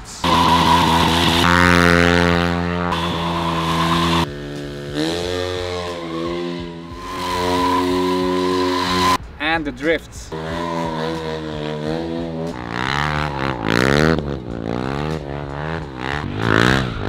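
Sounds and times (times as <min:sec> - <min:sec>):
tyre spinning in burnout: 0:00.2 - 0:04.3, 0:05.0 - 0:09.2
motorcycle engine at high revs: 0:00.2 - 0:09.2, 0:10.3 - 0:17.0.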